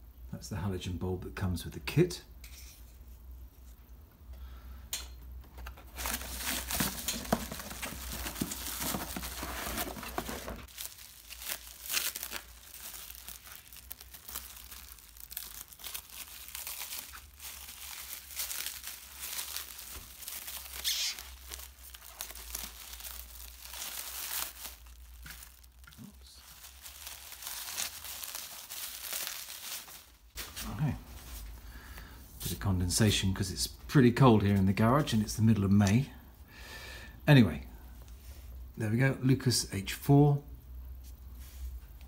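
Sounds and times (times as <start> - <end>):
bubble wrap crinkling: 5.8 - 31.5.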